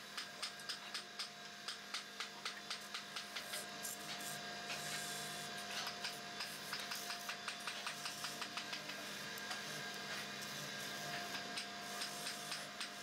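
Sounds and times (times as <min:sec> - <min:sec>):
chisel hissing cutting wood: 0:03.2 - 0:13.0.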